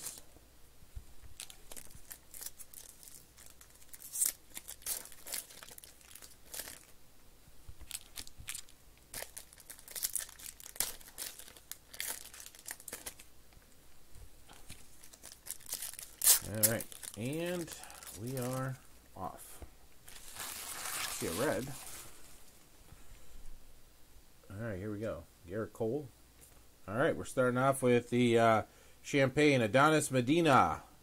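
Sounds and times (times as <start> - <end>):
plastic wrappers crinkling and tearing: 0.0 - 0.2, 1.3 - 7.0, 7.8 - 13.3, 14.6 - 18.9, 20.0 - 22.2.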